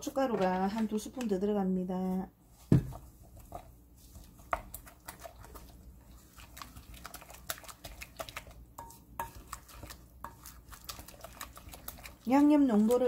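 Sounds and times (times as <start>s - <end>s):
spoon stirring paste in a glass bowl: 2.9s - 13.0s.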